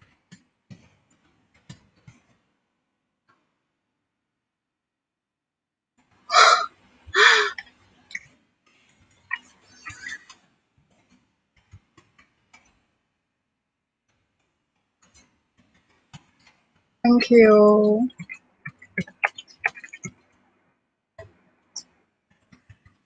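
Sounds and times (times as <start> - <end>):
soft breathy noises: 6.3 - 7.6
woman breathing out sharply: 6.4 - 7.6.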